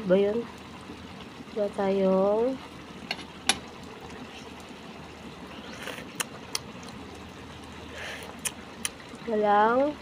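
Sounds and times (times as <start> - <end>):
sauce popping in a pan: 2.6 - 9.3.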